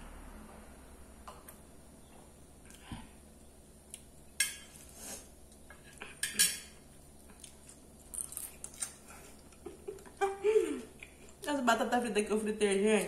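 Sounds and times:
cutlery clinking on ceramic plate: 6.2s - 6.8s.

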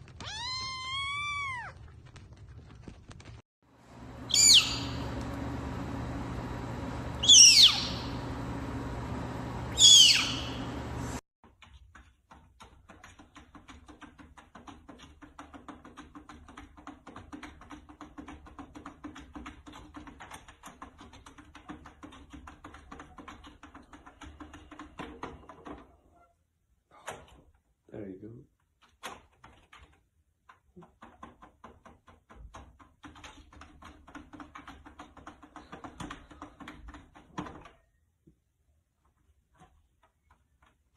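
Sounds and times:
snow leopard cub crying: 0.3s - 1.8s.

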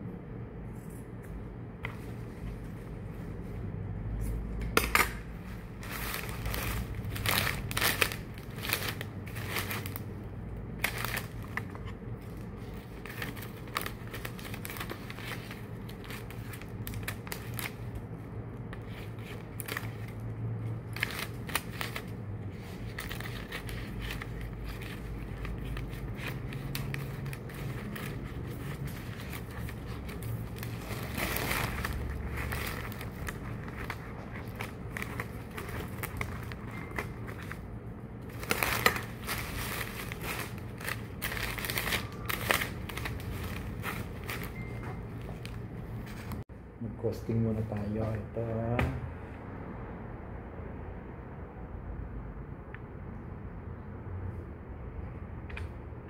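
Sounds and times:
low steady hum: 0.0s - 56.0s
material crinkling and clicking: 20.8s - 46.4s.

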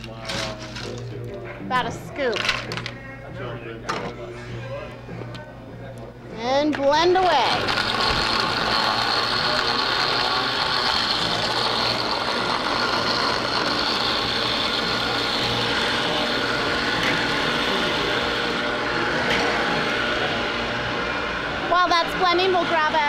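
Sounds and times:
blender blending ice: 6.9s - 23.0s.

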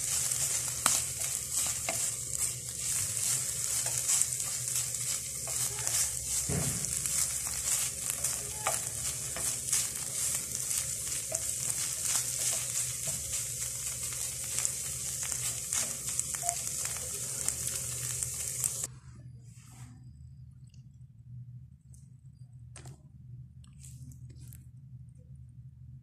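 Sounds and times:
fish sizzling in frying pan: 0.0s - 18.9s
wooden spatula scraping pan: 0.0s - 18.9s.

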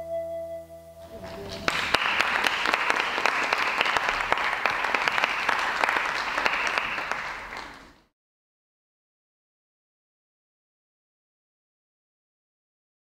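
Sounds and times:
audience applauding: 1.0s - 8.1s.

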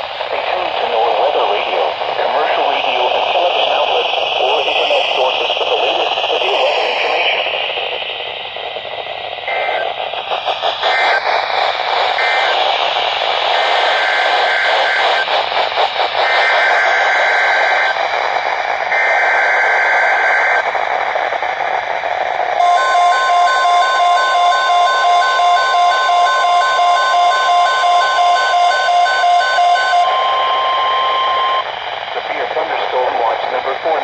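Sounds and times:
radio static: 0.2s - 7.9s, 9.5s - 10.0s, 10.6s - 11.4s, 12.0s - 12.8s, 13.4s - 15.4s, 16.2s - 18.0s, 18.9s - 20.6s, 22.6s - 34.0s
radio alarm beeping: 12.2s - 12.6s, 13.5s - 15.2s, 16.2s - 18.0s, 18.9s - 20.6s, 22.6s - 31.7s
shrill digital data bursts: 22.6s - 31.6s
steady attention tone: 22.6s - 31.7s.

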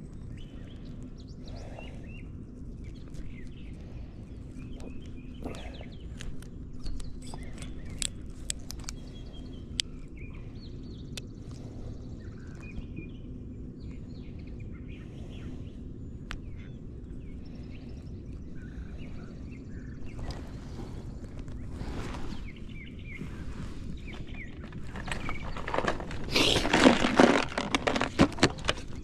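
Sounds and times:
birds chirping: 0.0s - 29.0s
low steady rumble: 0.0s - 29.0s
sharp clicks and ticks: 6.2s - 9.0s.

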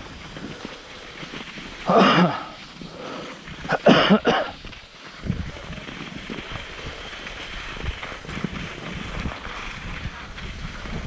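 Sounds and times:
wind buffeting microphone: 2.6s - 11.0s.

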